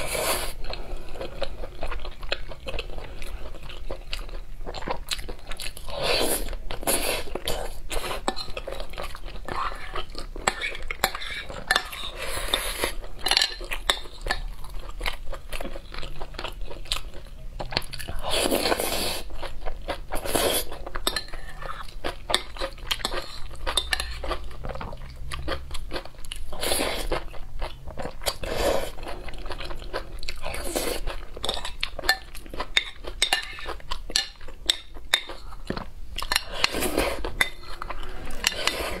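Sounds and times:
chewing and crunching: 0.0 - 39.0
spoon scraping glass bowl: 36.3 - 39.0.

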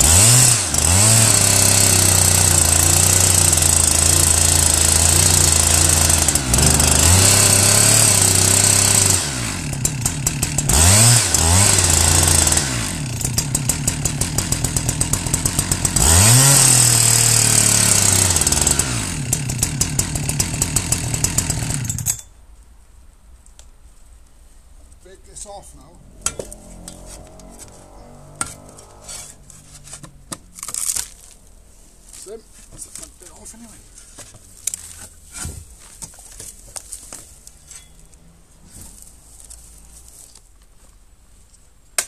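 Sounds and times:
chainsaw idling: 0.0 - 22.2
chainsaw cutting wood: 0.0 - 22.3, 26.2 - 31.2.

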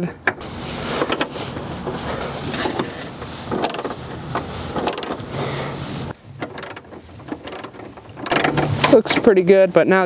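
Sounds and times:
truck engine idling: 0.4 - 9.0
ratchet clicking: 3.6 - 4.0, 4.8 - 5.3, 6.4 - 9.3.

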